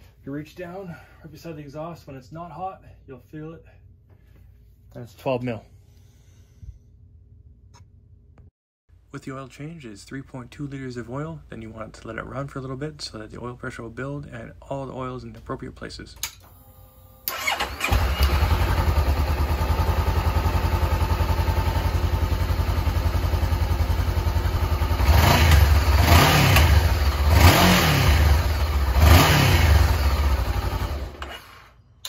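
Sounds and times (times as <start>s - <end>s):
electric starter cranking: 17.2s - 18.8s, 30.6s - 31.8s
motorcycle engine idling and revving: 17.3s - 31.8s.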